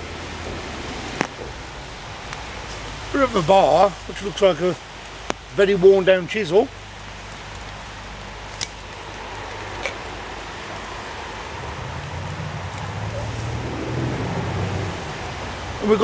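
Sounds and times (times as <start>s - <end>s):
outdoor background hiss: 0.0s - 16.0s
low hum: 10.9s - 15.7s.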